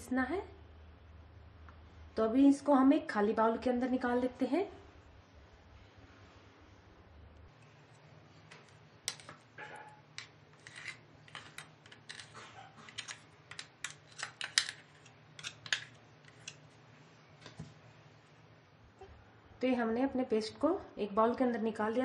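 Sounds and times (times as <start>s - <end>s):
utensil scraping jar and bowl: 10.5s - 16.6s.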